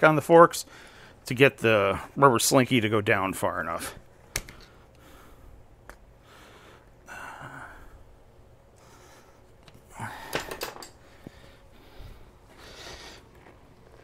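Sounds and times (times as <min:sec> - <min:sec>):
man exhaling with effort: 0:06.5 - 0:08.1, 0:09.9 - 0:10.6.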